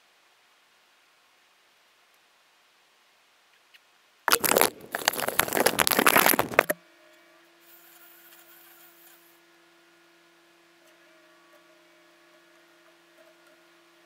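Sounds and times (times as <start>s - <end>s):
hand handling camera microphone: 4.3s - 6.8s.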